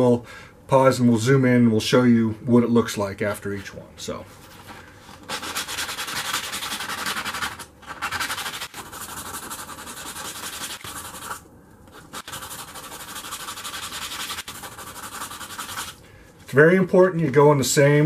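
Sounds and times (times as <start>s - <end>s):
metal scratching on sandpaper: 5.3s - 16.0s.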